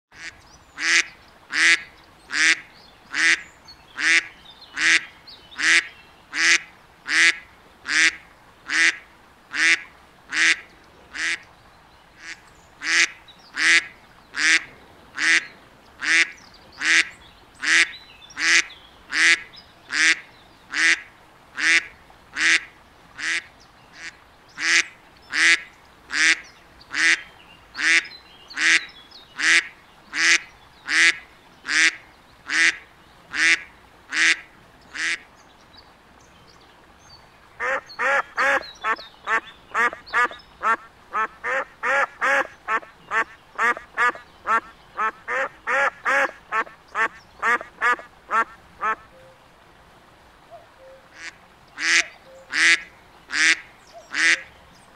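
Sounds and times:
duck quacking: 0:00.2 - 0:03.4, 0:05.6 - 0:11.4, 0:12.2 - 0:21.0, 0:37.6 - 0:49.1, 0:51.2 - 0:54.4.

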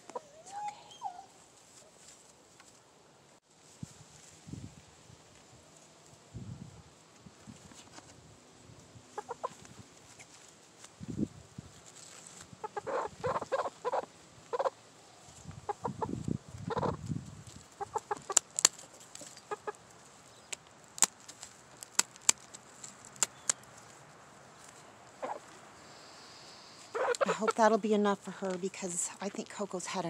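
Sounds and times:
hen clucking: 0:09.2 - 0:09.6, 0:12.6 - 0:14.8, 0:15.6 - 0:17.0, 0:17.7 - 0:18.4, 0:19.4 - 0:19.8, 0:25.2 - 0:25.5, 0:26.6 - 0:27.7.

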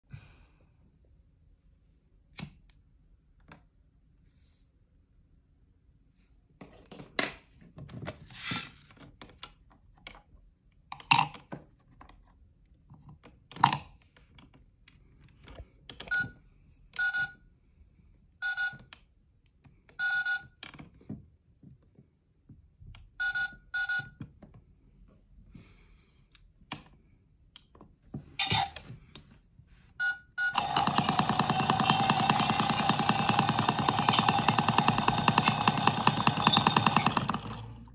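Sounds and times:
toy button beeps: 0:23.2 - 0:24.1
toy drum spinning whir: 0:30.5 - 0:37.9.

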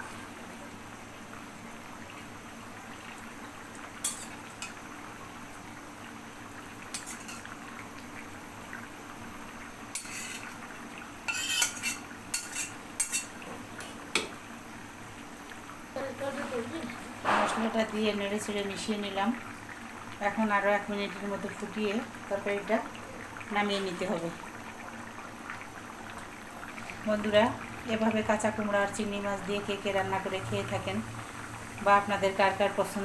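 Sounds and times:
utensils clinking on steel pans: 0:04.0 - 0:04.8, 0:06.9 - 0:07.5, 0:10.0 - 0:10.5, 0:11.3 - 0:13.4.

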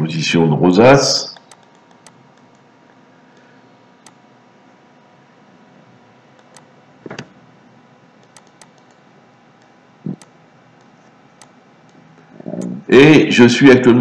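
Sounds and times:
faint room hum: 0:00.0 - 0:14.0
computer mouse clicks: 0:01.3 - 0:02.7, 0:06.4 - 0:07.3, 0:08.2 - 0:09.0, 0:09.6 - 0:12.8.

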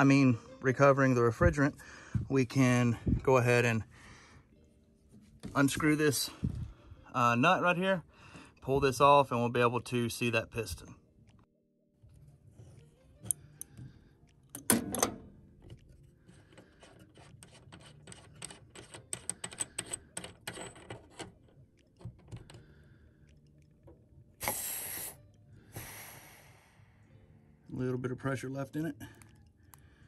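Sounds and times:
refrigerant hissing: 0:24.4 - 0:25.2.

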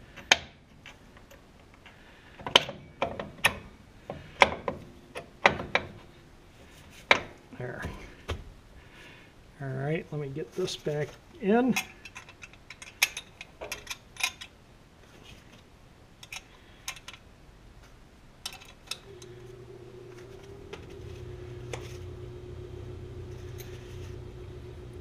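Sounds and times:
steady low hum: 0:15.8 - 0:25.0.

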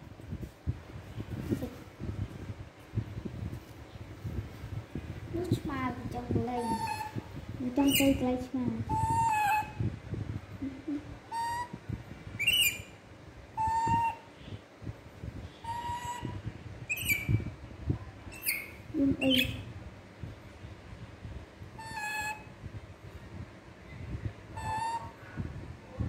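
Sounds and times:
soft rustling: 0:00.1 - 0:06.5.

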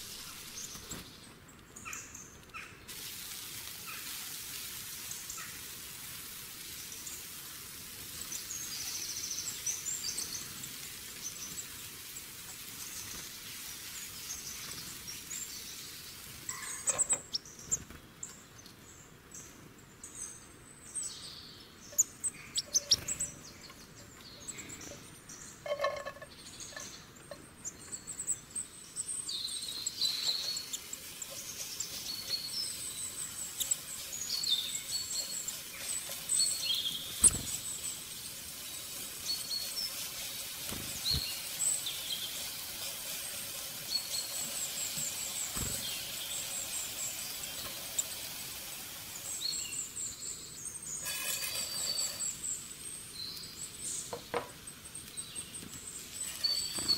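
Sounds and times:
birds chirping: 0:00.0 - 0:56.9
metal spatula scraping a wok: 0:51.0 - 0:52.3.

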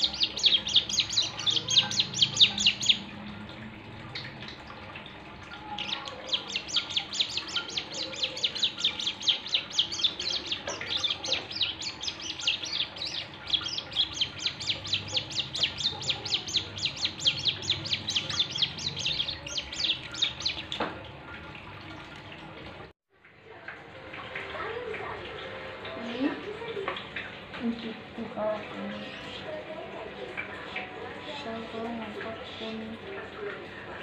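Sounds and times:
bird singing fast trill: 0:00.0 - 0:03.1, 0:05.8 - 0:20.8.

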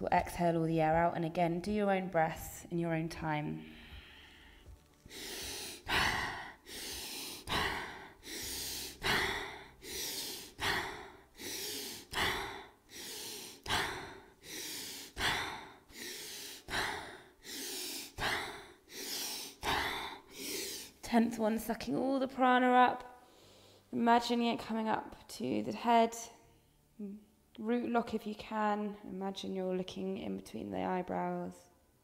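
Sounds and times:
woman breathing forcefully: 0:03.6 - 0:21.0, 0:23.2 - 0:23.9.

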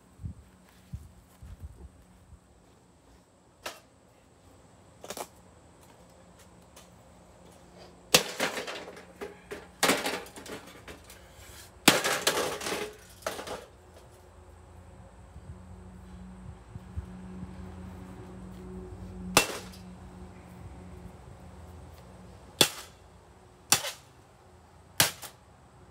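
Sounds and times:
toaster oven crashing: 0:09.8 - 0:10.9.

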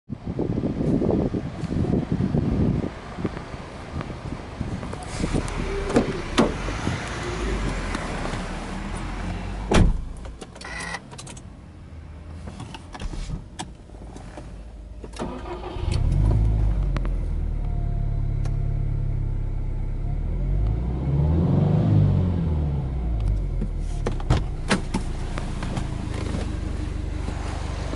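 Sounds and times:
car engine starting and idling: 0:02.4 - 0:27.9
car door clicks and clunk: 0:05.8 - 0:06.7, 0:09.7 - 0:11.4, 0:23.6 - 0:26.6.

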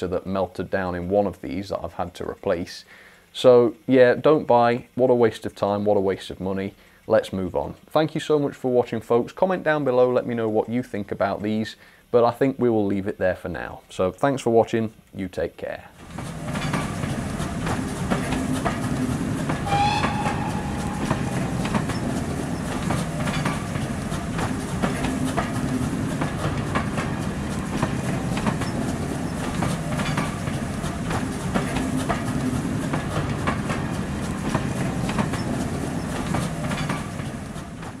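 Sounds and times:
train wheels clickety-clack: 0:16.0 - 0:38.0
short train whistle: 0:19.6 - 0:22.7.

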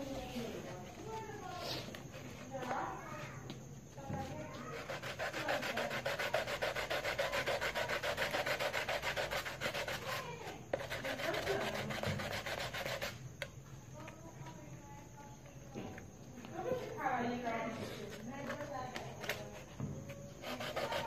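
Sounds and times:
plastic pipe rasping on sandpaper: 0:04.6 - 0:13.2, 0:20.4 - 0:21.0.

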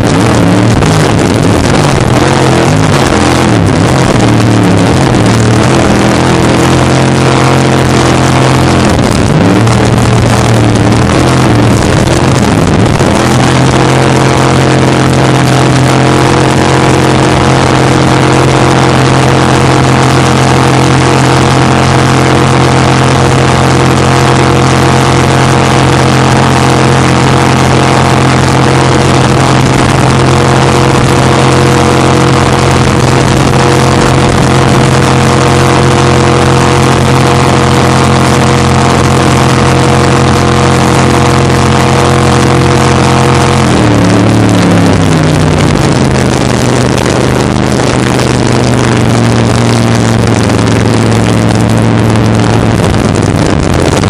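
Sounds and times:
jet boat engine running hard: 0:00.0 - 0:54.0.

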